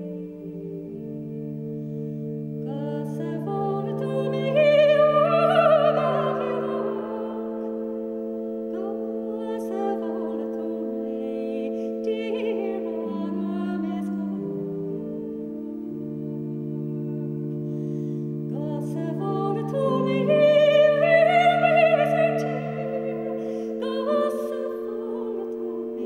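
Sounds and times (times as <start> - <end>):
sustained low drone tones: 0.0 - 26.0
solo voice singing with vibrato: 2.7 - 7.8, 8.7 - 15.3, 18.5 - 26.0.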